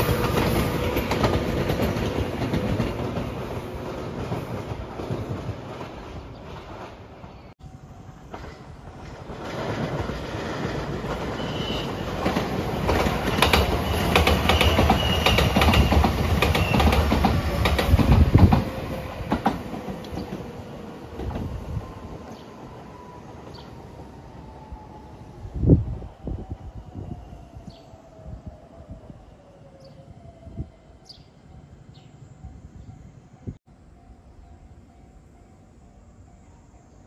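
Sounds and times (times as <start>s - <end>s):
electric train whine: 0.0s - 37.0s
train wheels clacking over rail joints: 8.3s - 20.4s.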